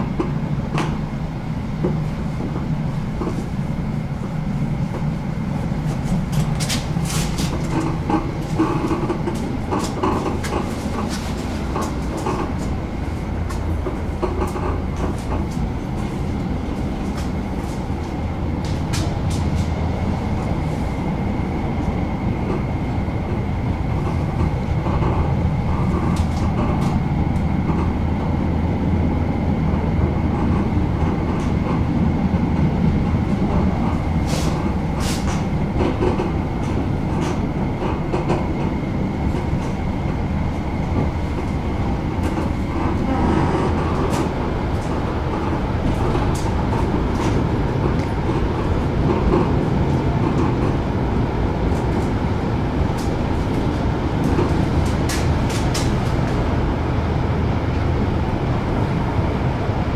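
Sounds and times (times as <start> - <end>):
high whine: 0.0 - 59.9
tram rumble: 0.0 - 59.9.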